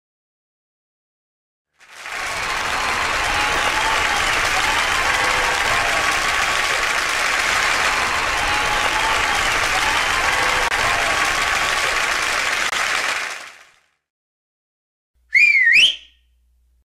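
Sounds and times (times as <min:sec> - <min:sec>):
crowd applauding: 0:01.8 - 0:14.0.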